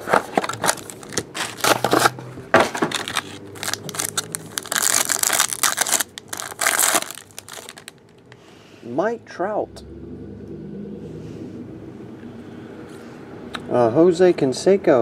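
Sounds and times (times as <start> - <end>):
foil wrapper tearing and crinkling: 0.4 - 2.2, 2.9 - 8.1.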